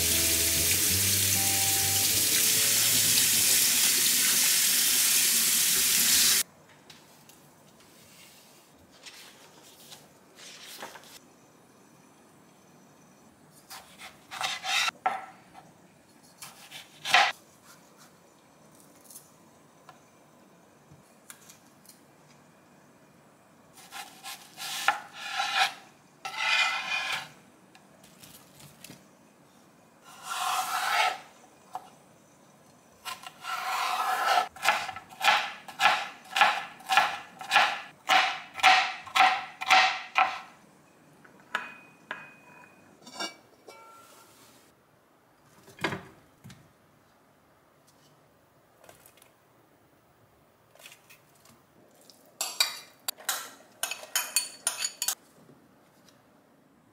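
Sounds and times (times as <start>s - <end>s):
knife chopping on cutting board: 33.1s - 40.4s.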